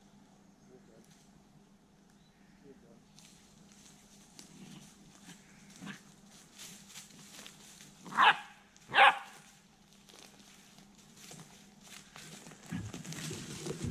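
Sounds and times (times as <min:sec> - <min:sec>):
footsteps in dry leaves: 0:03.1 - 0:13.9
small dog barking: 0:08.1 - 0:09.5.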